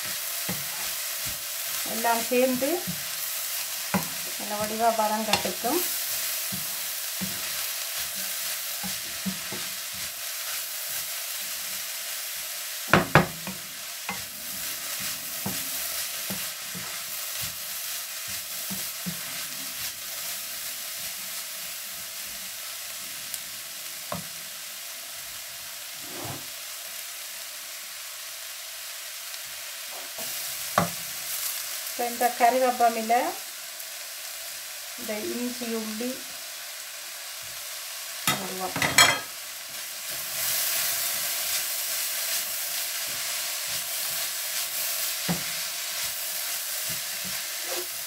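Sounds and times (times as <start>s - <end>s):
wooden spoon scraping wok: 0.0s - 12.3s, 12.9s - 21.1s, 25.9s - 26.6s, 38.3s - 48.0s
food sizzling in a wok: 0.0s - 48.0s.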